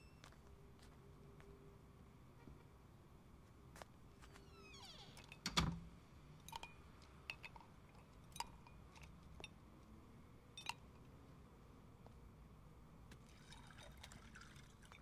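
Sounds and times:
glassware clinking: 0:06.5 - 0:07.7, 0:10.6 - 0:10.8.

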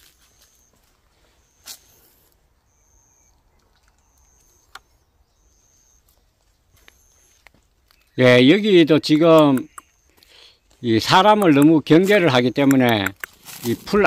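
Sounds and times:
footsteps on dry leaves: 0:00.0 - 0:02.4, 0:13.3 - 0:14.0.

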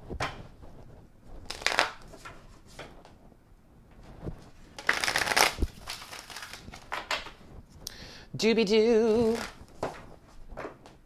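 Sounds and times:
cards being shuffled: 0:01.4 - 0:02.9, 0:04.8 - 0:07.4, 0:09.1 - 0:10.1.

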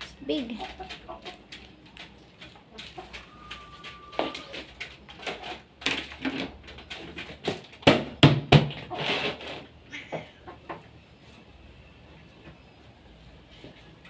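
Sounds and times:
chickens clucking: 0:00.3 - 0:07.7, 0:09.9 - 0:11.5.

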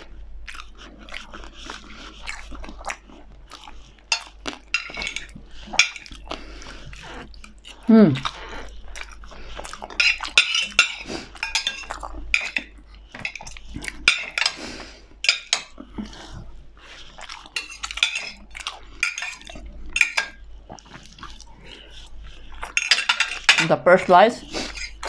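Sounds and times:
cutlery scraping on plate: 0:04.1 - 0:06.2, 0:10.0 - 0:15.7, 0:17.6 - 0:18.4, 0:19.0 - 0:20.4, 0:22.6 - 0:23.8, 0:24.6 - 0:25.0.

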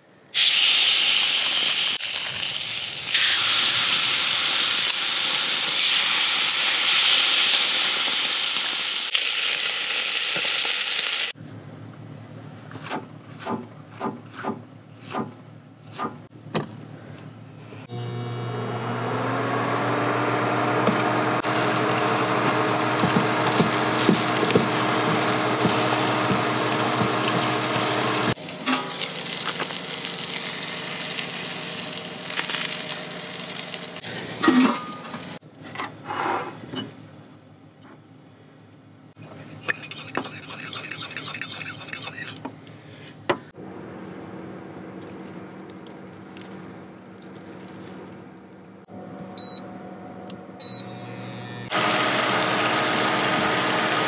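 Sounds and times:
mushrooms sizzling in oil: 0:00.4 - 0:11.3, 0:17.9 - 0:34.1.

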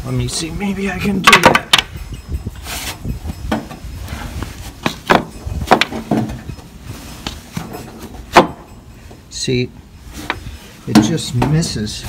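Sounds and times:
wooden knocks and scrapes: 0:02.6 - 0:08.6.

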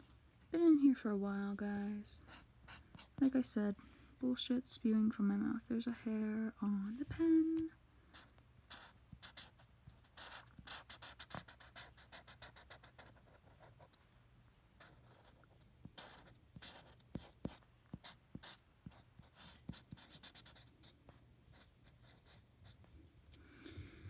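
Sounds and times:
pen scratching on paper: 0:02.3 - 0:03.4, 0:08.1 - 0:14.0, 0:14.8 - 0:22.8.

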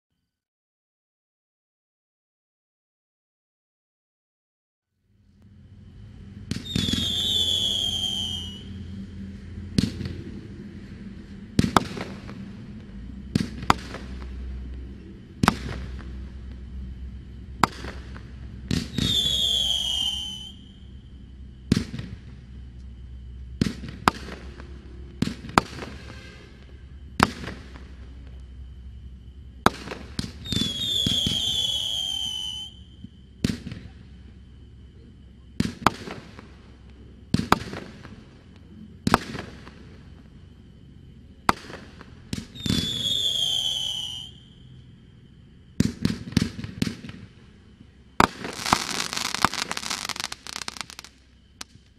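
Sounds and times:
firework shot reports and bursts: 0:06.4 - 0:08.8, 0:11.2 - 0:16.5, 0:17.4 - 0:21.0, 0:21.6 - 0:22.6, 0:23.5 - 0:28.6, 0:29.5 - 0:34.1, 0:48.2 - 0:51.8
firework whistle falling in pitch: 0:06.4 - 0:09.2, 0:18.7 - 0:21.1, 0:29.9 - 0:33.2, 0:42.5 - 0:44.7
rapid firework crackling: 0:48.2 - 0:51.7.

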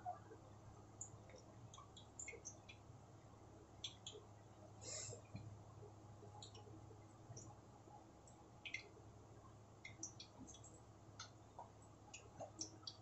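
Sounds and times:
faint low hum: 0:00.0 - 0:13.0
faint clicks: 0:08.2 - 0:09.0.

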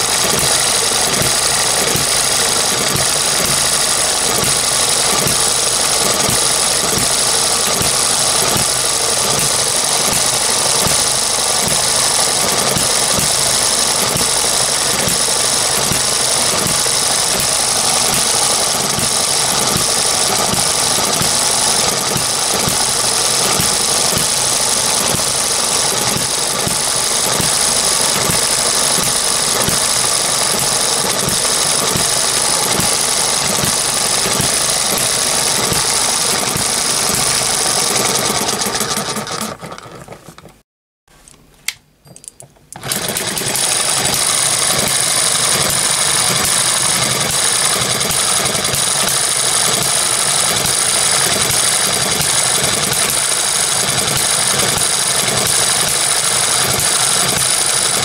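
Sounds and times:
model gas engine clattering: 0:00.0 - 0:40.6, 0:41.7 - 0:58.0.

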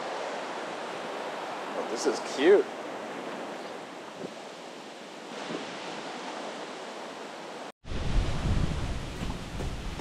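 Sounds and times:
ocean surf hiss: 0:00.0 - 0:07.7.

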